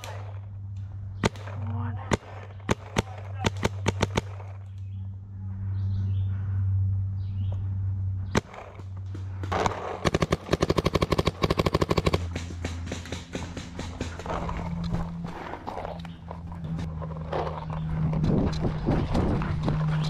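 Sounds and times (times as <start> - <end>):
paintball marker firing: 0.0 - 0.4, 1.2 - 4.8, 8.4 - 14.6
low hum: 0.0 - 20.0.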